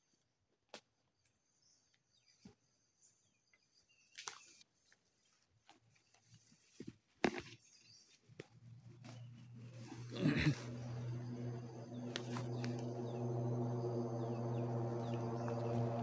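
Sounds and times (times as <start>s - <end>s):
faint insects buzzing: 9.0s - 16.0s.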